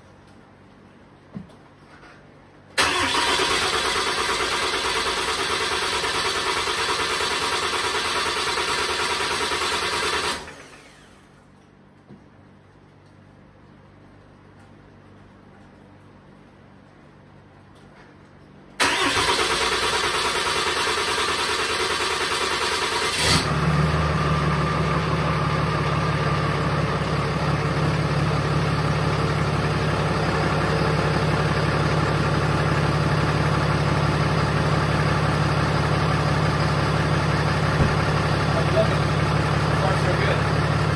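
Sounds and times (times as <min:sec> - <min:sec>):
diesel engine idling: 0:02.8 - 0:11.1, 0:18.8 - 0:40.9
diesel engine cranking: 0:02.8 - 0:11.2, 0:18.8 - 0:40.9.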